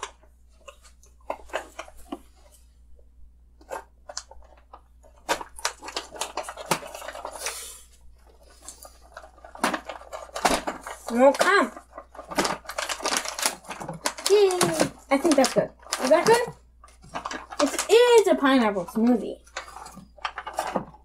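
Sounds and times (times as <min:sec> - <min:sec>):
frozen chunks clicking into jar: 0:03.7 - 0:07.5, 0:08.7 - 0:21.0
plastic bag crinkling: 0:03.7 - 0:21.0.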